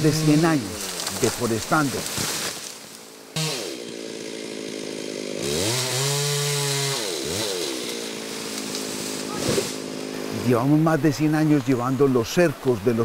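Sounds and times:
chainsaw engine revving: 0.0 - 2.1, 3.3 - 10.8.

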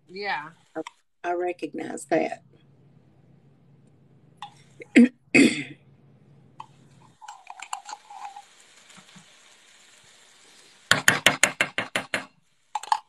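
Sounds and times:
spoon tapping on metal: 10.9 - 13.0
metal spoon scraping tin can: 12.7 - 13.0.

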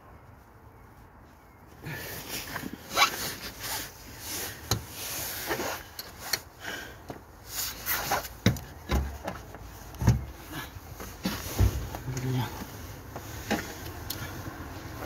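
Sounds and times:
fabric rubbing: 2.8 - 5.8
knocks and clicks in engine bay: 8.4 - 10.3.

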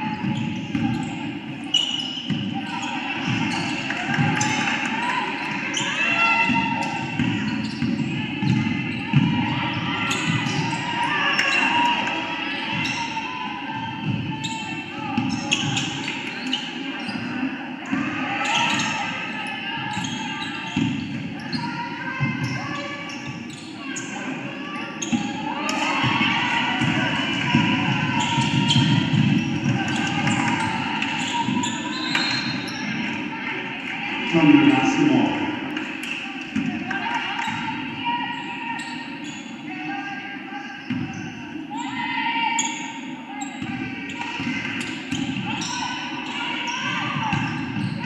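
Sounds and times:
crowd shouting and cheering: 0.0 - 48.0
basketball bouncing on gym floor: 0.2 - 1.2, 6.4 - 10.8, 26.0 - 32.3.

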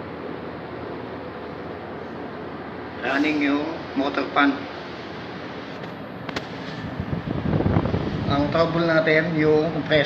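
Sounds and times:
air conditioner fan rushing air: 0.0 - 10.0.

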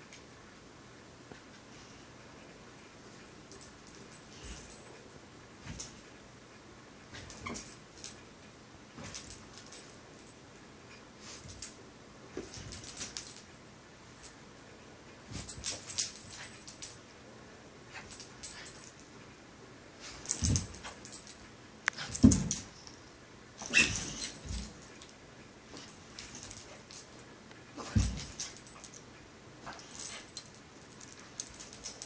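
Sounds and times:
collar tags jingling: 12.4 - 13.5, 15.3 - 17.0, 17.9 - 19.1, 20.0 - 22.9, 23.6 - 25.1, 25.8 - 32.0.

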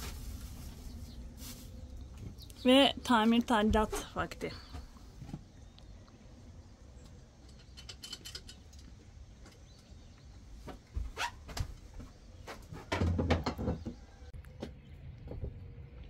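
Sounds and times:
hands and tools clicking and knocking: 7.0 - 9.9, 12.6 - 15.6.

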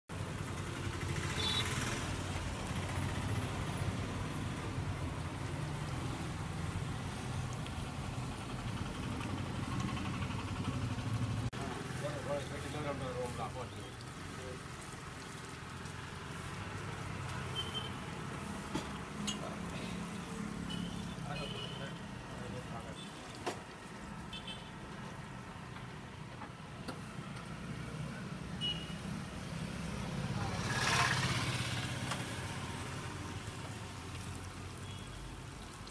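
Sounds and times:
hot oil sizzling: 0.1 - 35.9
vehicle engine idling: 8.0 - 12.6.

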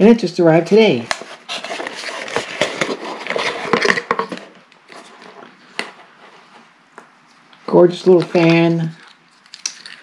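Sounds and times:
plastic rustling against cardboard box: 1.2 - 6.7.

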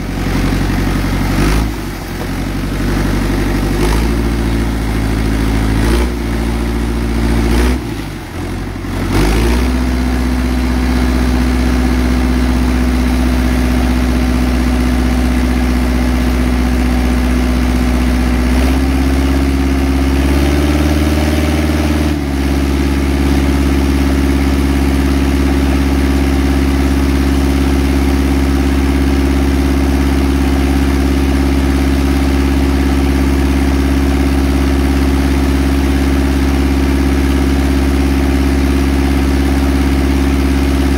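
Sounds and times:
pump engine running: 0.0 - 40.9.

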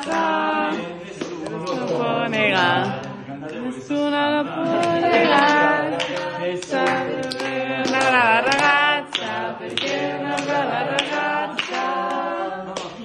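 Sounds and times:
hand claps: 0.0 - 3.8, 4.6 - 13.0
voices singing together: 0.0 - 13.0.

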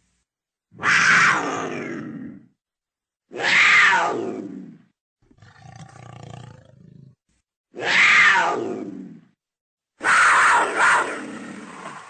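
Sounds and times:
leopard harsh calls: 10.0 - 12.0.

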